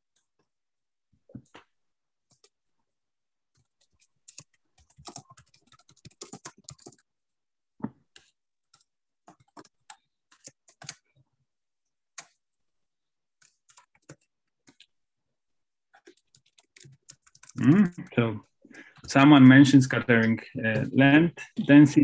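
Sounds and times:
computer keyboard typing: 3.6s - 7.1s, 8.1s - 11.1s, 13.4s - 14.9s, 16.0s - 18.1s.

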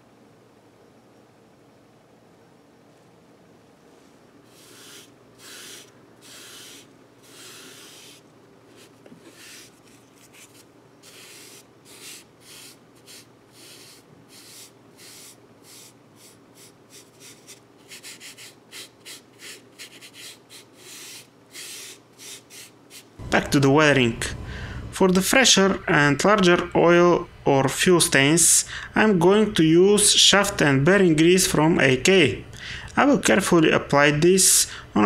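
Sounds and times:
sponge brush rubbing on wood: 4.5s - 23.1s.

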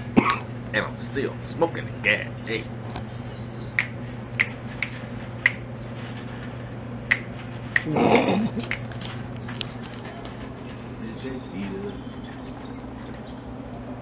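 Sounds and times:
steady low hum: 0.0s - 14.0s
finger snaps: 3.8s - 5.6s, 7.1s - 8.9s.

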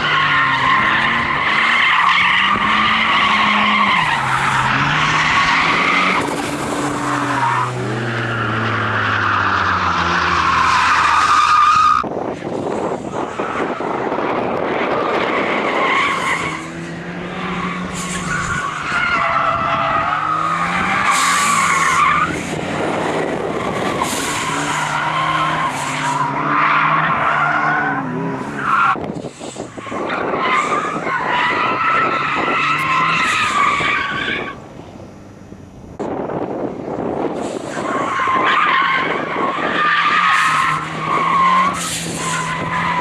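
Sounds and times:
car engine revving: 0.0s - 11.4s.

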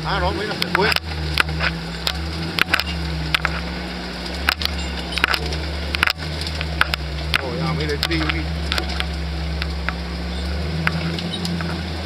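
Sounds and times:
car engine running: 0.0s - 12.0s
sharp clicks and knocks: 0.5s - 10.0s.

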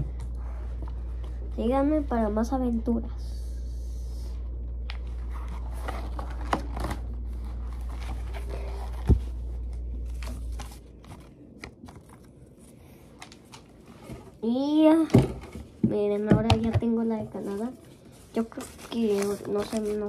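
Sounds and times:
low steady hum: 0.0s - 20.0s
paper pages rustling and flipping: 4.8s - 14.4s, 17.3s - 20.0s.

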